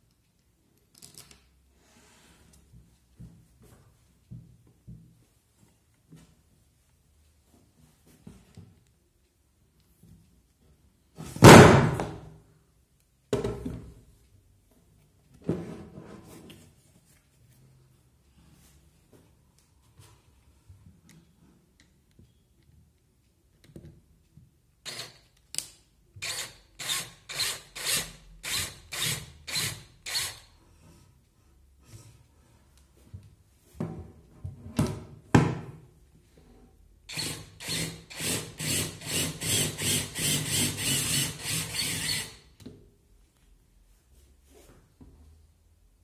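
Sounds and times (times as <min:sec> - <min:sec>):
cordless drill driving bolts: 0:24.8 - 0:25.2, 0:37.1 - 0:42.4.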